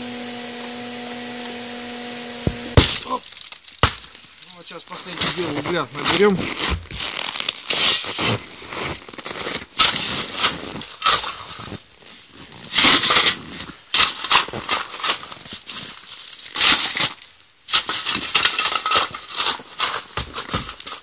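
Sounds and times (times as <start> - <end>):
shovel scraping coal: 2.3 - 21.0
coal rattling into bucket: 2.8 - 6.4, 12.7 - 21.0.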